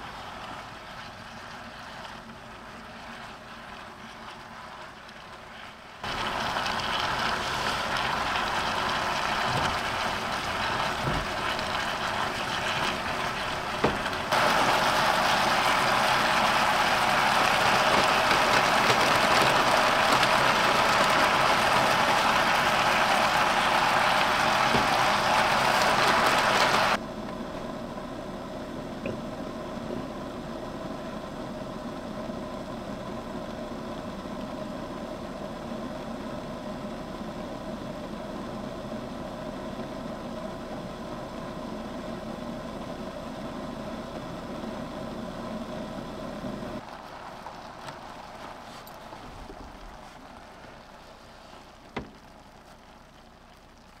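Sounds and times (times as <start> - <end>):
gas stove flame hissing: 6.0 - 27.6.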